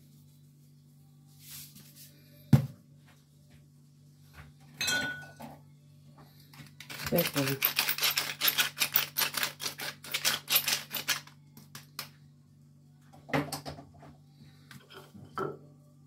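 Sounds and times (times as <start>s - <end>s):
pepper mill grinding: 6.8s - 11.8s.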